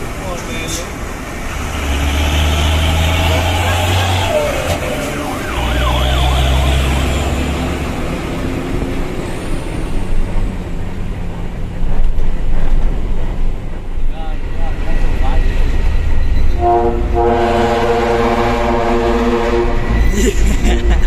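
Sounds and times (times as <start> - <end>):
diesel engine inside cab: 0.0 - 14.0
road noise: 0.0 - 21.0
truck air horn blast: 16.6 - 20.0.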